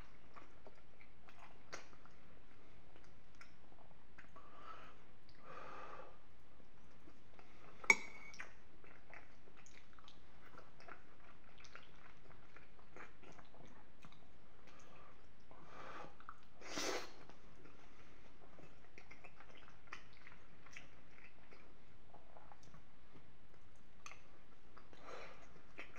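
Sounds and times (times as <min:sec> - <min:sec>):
wet chewing: 0:07.4 - 0:15.0, 0:17.3 - 0:22.8.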